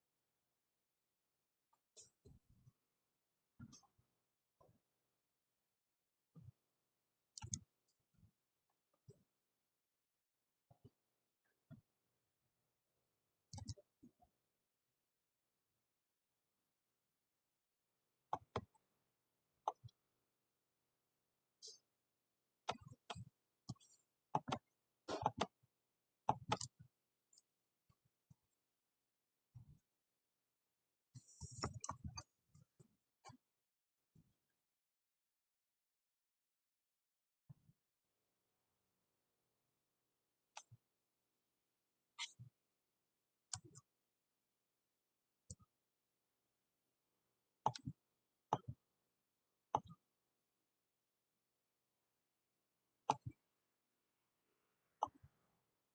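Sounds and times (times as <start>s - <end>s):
mouse and keyboard clicking: 7.4s - 7.7s, 26.3s - 26.8s
mouse and keyboard clicks: 7.4s - 7.7s, 13.5s - 13.9s, 24.4s - 25.6s, 26.3s - 26.8s, 53.1s - 53.4s.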